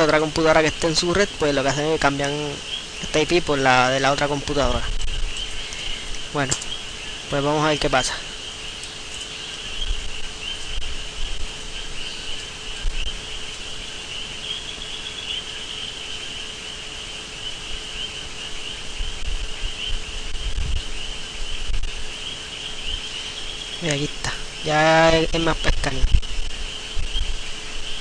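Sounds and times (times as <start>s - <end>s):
faint steady hum: 0.0s - 28.0s
insects chirring: 0.0s - 28.0s.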